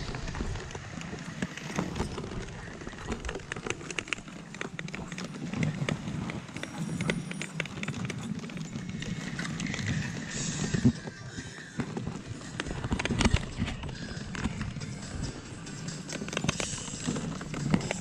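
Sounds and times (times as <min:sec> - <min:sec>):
clicks and knocks of sled: 0:00.0 - 0:18.0
wind rumble on microphone: 0:00.0 - 0:18.0
sled runners hissing on snow: 0:09.9 - 0:12.8.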